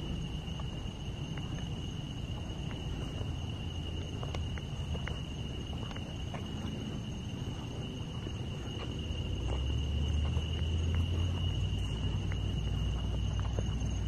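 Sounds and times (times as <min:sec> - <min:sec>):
crickets trilling: 0:00.0 - 0:14.0
footsteps on gravel: 0:00.0 - 0:14.0.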